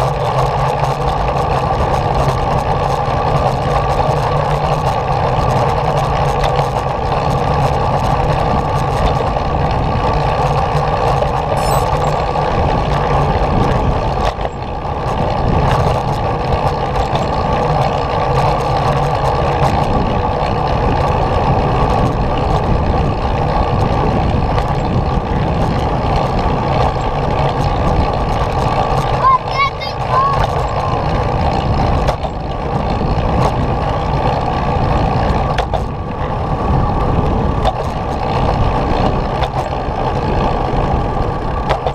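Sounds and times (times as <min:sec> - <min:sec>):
vehicle rumbling on concrete path: 0:00.0 - 0:41.9.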